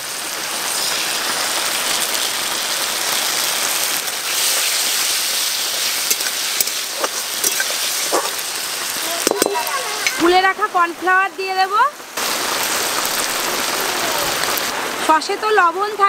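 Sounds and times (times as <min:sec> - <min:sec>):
vegetables sizzling in hot oil: 0:00.0 - 0:16.0
spatula scraping wok: 0:04.2 - 0:10.3.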